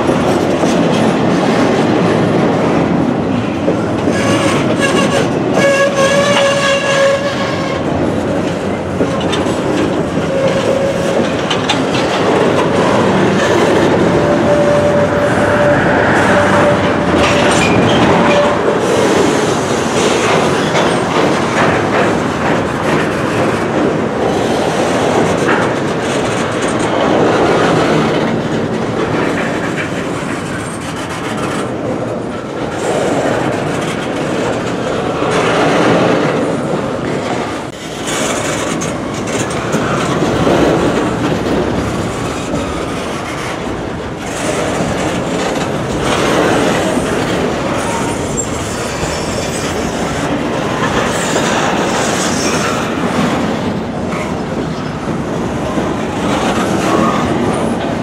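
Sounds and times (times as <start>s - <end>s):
train wheels on rail: 0.0s - 58.0s
clicks over rail joints: 3.6s - 14.1s
wheels squealing: 12.8s - 18.7s.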